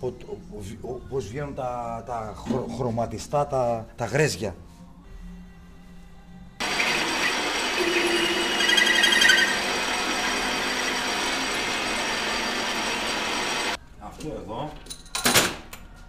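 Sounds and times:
metal lathe cutting steel: 0:06.6 - 0:13.8
squealing chatter of cutting tool: 0:06.6 - 0:13.8.

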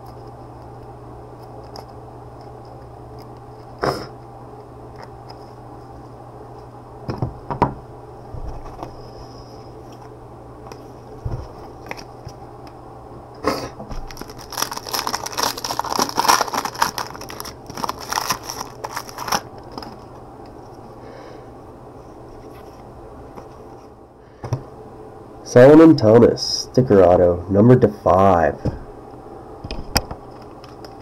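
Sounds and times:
packaging crinkling and rustling: 0:10.7 - 0:12.4, 0:13.9 - 0:20.7.

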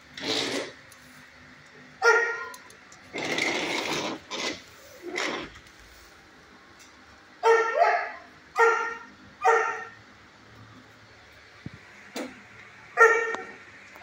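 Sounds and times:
dog barking: 0:02.0 - 0:02.6, 0:07.4 - 0:10.0, 0:13.0 - 0:13.6.

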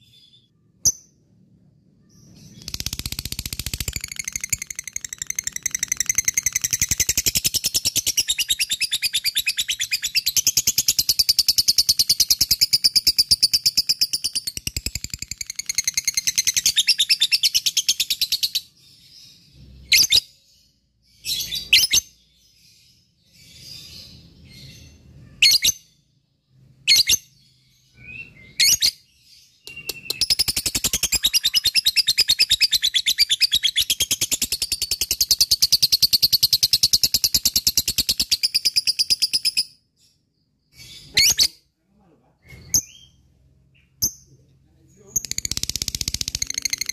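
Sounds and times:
lovebird trilling: 0:02.5 - 0:13.0, 0:29.7 - 0:38.9, 0:45.2 - 0:46.9.

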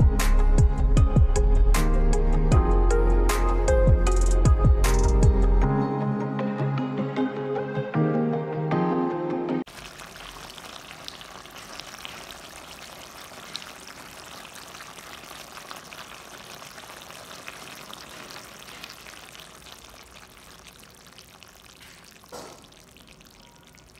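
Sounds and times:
curry bubbling and popping: 0:09.7 - 0:23.9.

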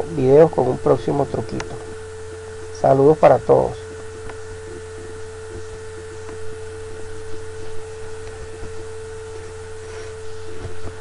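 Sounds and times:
electrical hum and hiss: 0:00.0 - 0:11.0
steady mid-pitched tone: 0:00.0 - 0:11.0.

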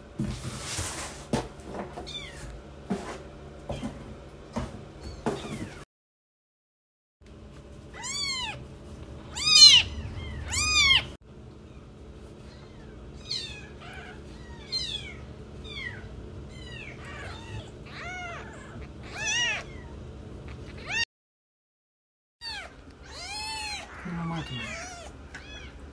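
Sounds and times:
kittens mewing: 0:07.9 - 0:08.6, 0:09.2 - 0:21.1, 0:22.4 - 0:25.9.

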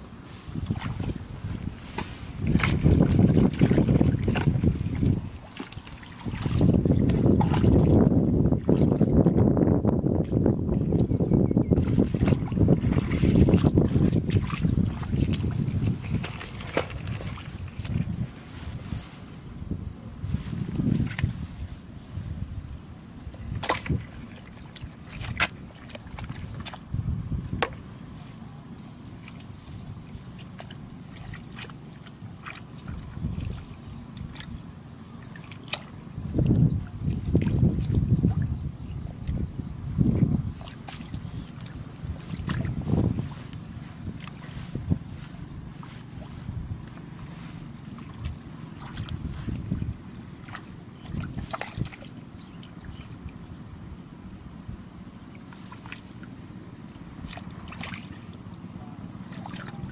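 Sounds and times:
feet sloshing in muddy water: 0:00.0 - 0:59.9
wind rumble on microphone: 0:00.0 - 0:59.9
sharp splash: 0:11.8 - 0:18.0, 0:50.4 - 0:52.2, 0:57.2 - 0:58.2.

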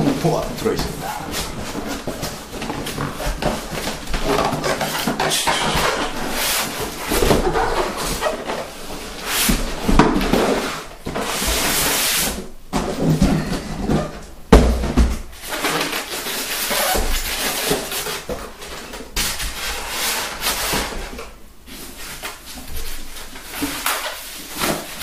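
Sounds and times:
cardboard packaging rustling: 0:00.0 - 0:12.3, 0:15.4 - 0:21.1.

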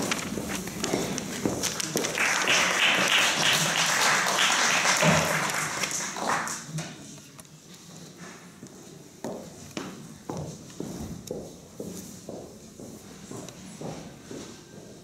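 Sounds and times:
audience applauding: 0:01.8 - 0:06.8.

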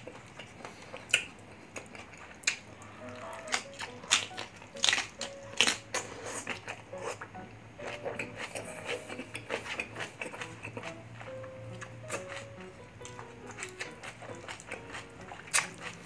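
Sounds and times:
wet chewing: 0:00.0 - 0:16.0.

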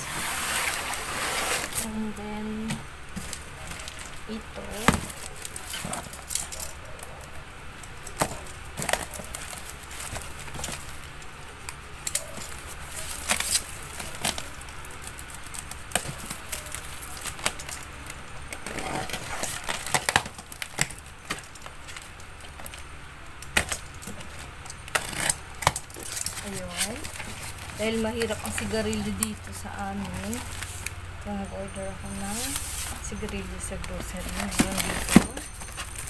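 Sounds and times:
cardboard scraping rustle: 0:00.0 - 0:06.7, 0:18.5 - 0:22.1, 0:24.1 - 0:31.0, 0:32.0 - 0:36.0
cardboard boxes knocking and rustling: 0:32.1 - 0:36.0.

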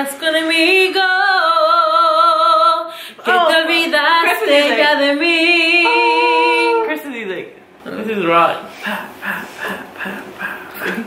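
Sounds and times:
woman singing unaccompanied: 0:00.0 - 0:07.0.

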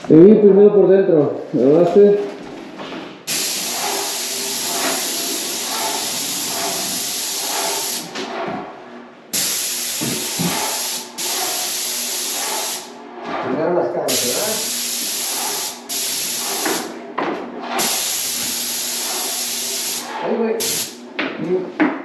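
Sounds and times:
paint sprayer hissing: 0:03.3 - 0:08.1, 0:09.3 - 0:12.9, 0:14.1 - 0:17.0, 0:17.7 - 0:21.0.

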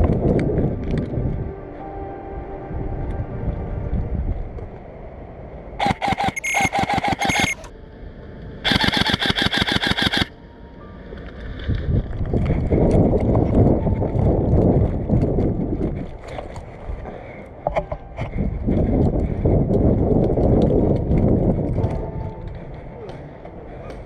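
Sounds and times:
airsoft rifle firing: 0:08.7 - 0:10.3.

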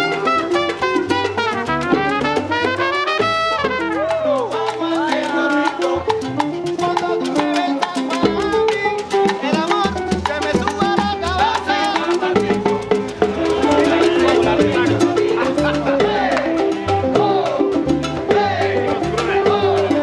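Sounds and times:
trumpet melody: 0:00.0 - 0:17.7
congas and bongos: 0:00.0 - 0:20.0
upright bass: 0:00.0 - 0:20.0
person singing: 0:04.2 - 0:20.0.

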